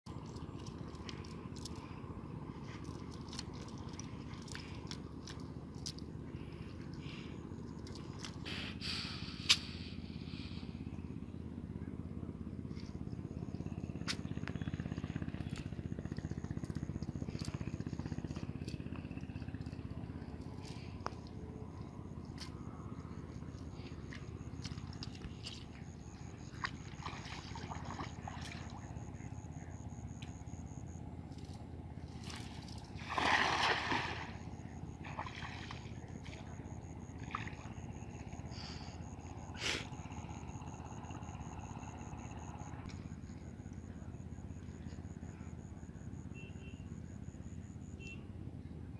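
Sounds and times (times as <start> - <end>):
small water splashes: 0.1 - 8.4, 14.4 - 29.6, 32.1 - 38.5
steady low rumble: 0.1 - 46.2
small engine chugging: 0.1 - 48.9
net splashing into water: 26.5 - 28.9, 32.2 - 36.4.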